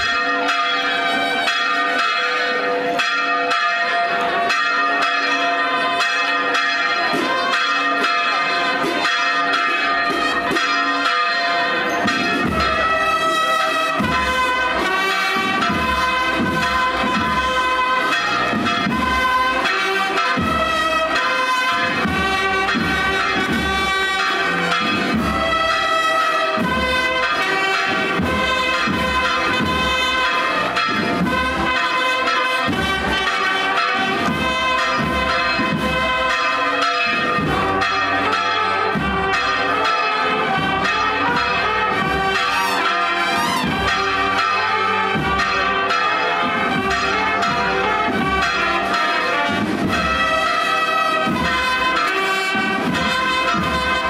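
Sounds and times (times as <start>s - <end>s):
sustained brass chords: 12.0s - 54.0s.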